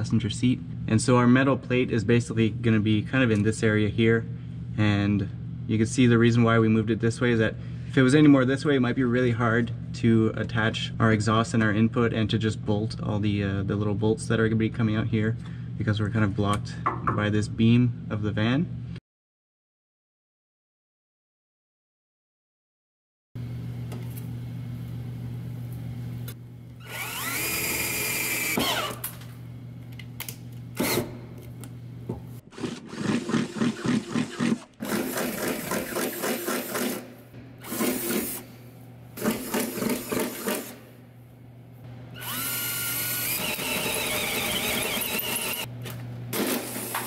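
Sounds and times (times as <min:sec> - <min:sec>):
cordless drill cutting sheet metal: 0:26.8 - 0:29.0, 0:32.5 - 0:37.0, 0:37.6 - 0:38.4, 0:39.2 - 0:40.8, 0:42.2 - 0:45.7, 0:46.3 - 0:47.0.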